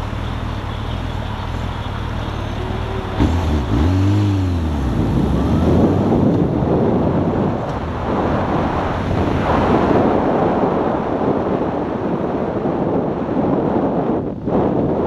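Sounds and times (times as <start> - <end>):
motorcycle engine: 0.0 - 10.2
road noise: 0.0 - 15.0
wind buffeting microphone: 2.4 - 15.0.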